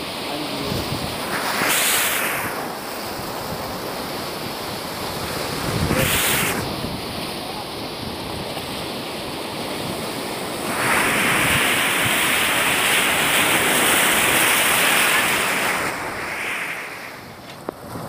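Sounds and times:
surf breaking over rocks: 0.0 - 18.0.

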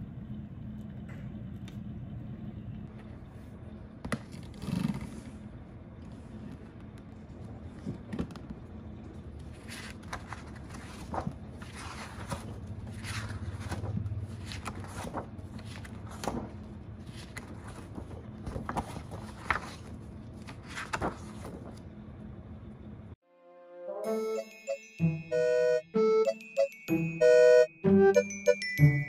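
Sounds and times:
low room hum: 0.0 - 23.2.

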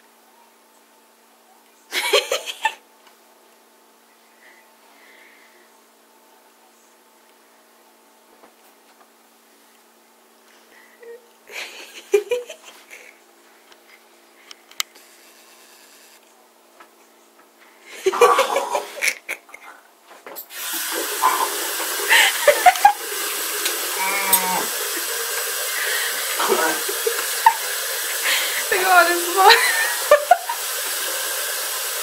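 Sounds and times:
man coughing and spluttering: 18.1 - 19.1, 26.3 - 27.6
tap running into basin: 20.5 - 32.0.

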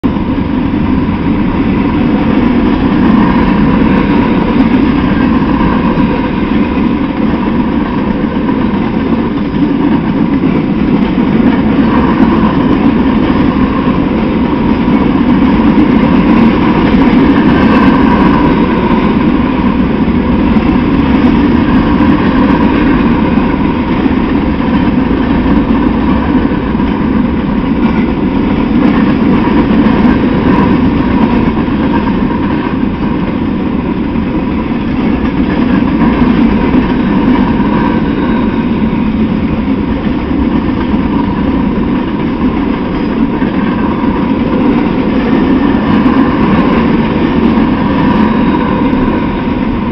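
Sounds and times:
freight train rolling past: 0.0 - 49.9.

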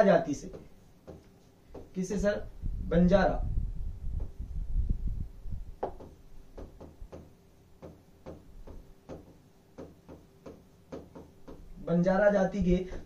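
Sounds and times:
faint steady hum: 0.0 - 13.0
clicks and taps of writing on board: 0.4 - 2.0, 5.8 - 11.7.

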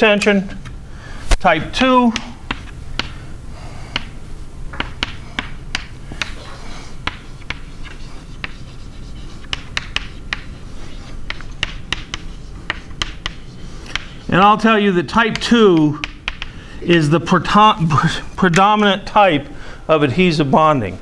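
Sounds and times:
low room hum: 0.0 - 21.0
chalk tapping and scratching: 2.1 - 3.2, 3.9 - 4.2, 4.8 - 16.5.

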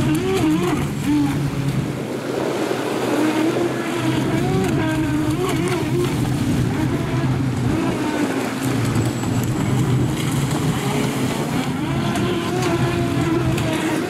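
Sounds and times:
wind on microphone: 0.0 - 14.0
electric motor whining: 3.1 - 14.0.

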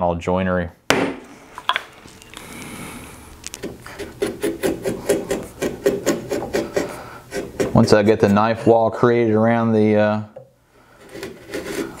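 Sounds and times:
chisel scraping wood: 3.5 - 8.8, 10.8 - 12.0
chisel ticking along wood: 3.6 - 7.8.

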